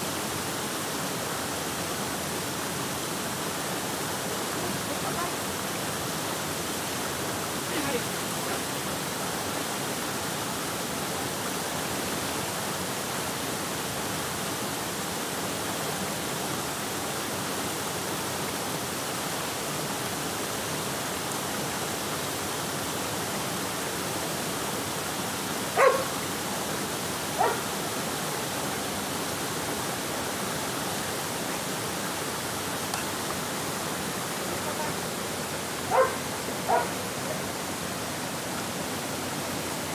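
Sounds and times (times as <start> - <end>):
waterfall rushing over rocks: 0.0 - 39.9
dog barking: 25.8 - 26.2, 27.4 - 27.7, 35.9 - 37.0.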